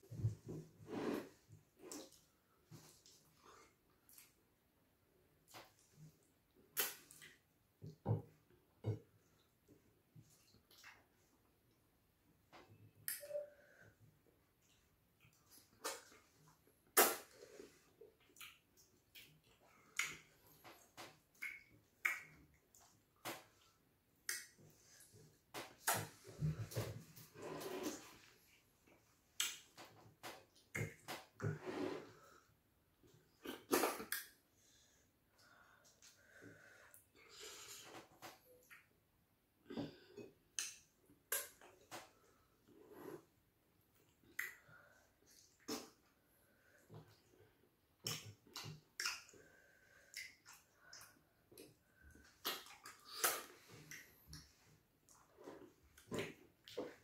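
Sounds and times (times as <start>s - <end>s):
wet eating smacks and squelches: 5.4s - 8.0s, 14.6s - 27.0s, 45.3s - 46.1s, 48.0s - 57.0s
wet mouth smacks: 6.8s - 7.4s.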